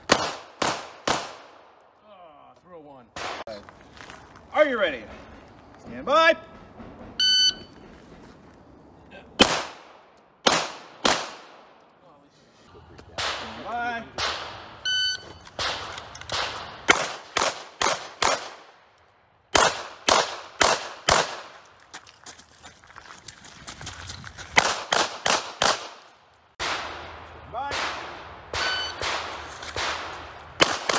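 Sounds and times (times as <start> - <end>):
pistol shots: 0.0 - 1.7, 9.4 - 11.7, 13.2 - 14.8, 15.5 - 18.8, 19.5 - 21.6, 24.6 - 26.0, 26.6 - 30.9
shot timer beep: 7.2 - 7.7, 14.8 - 15.4, 28.6 - 29.0.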